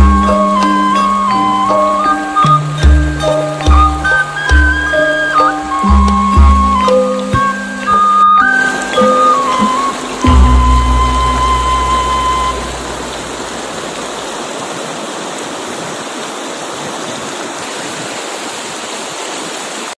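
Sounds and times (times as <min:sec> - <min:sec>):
held musical note and bass: 0:00.0 - 0:14.3
river rushing over rocks: 0:00.0 - 0:20.0.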